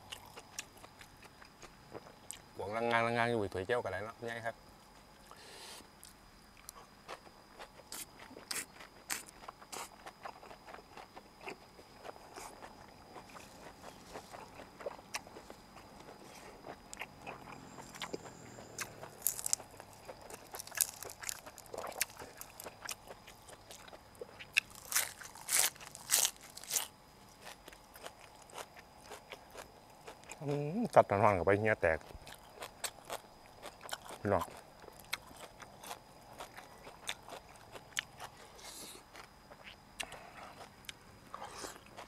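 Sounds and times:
crunching and chewing: 0.0s - 3.0s, 4.9s - 31.0s, 31.7s - 42.0s.

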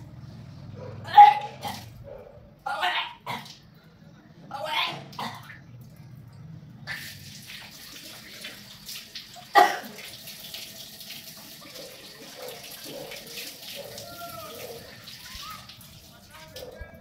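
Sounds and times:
tap water splashing into basin: 6.9s - 16.7s.

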